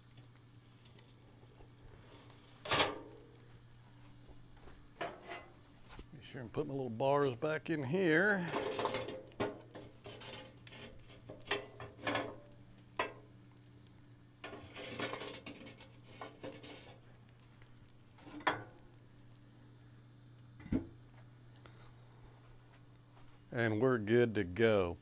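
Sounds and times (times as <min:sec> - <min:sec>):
faint steady hum: 0:00.0 - 0:25.0
metal lid thud: 0:20.6 - 0:20.9.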